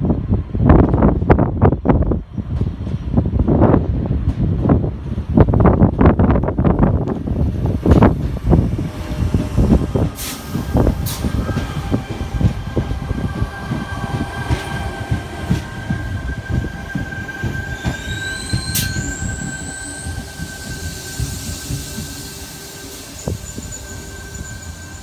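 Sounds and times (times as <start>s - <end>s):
train wheels rumbling and clattering: 0.0s - 25.0s
high squeal rising in pitch: 8.7s - 25.0s.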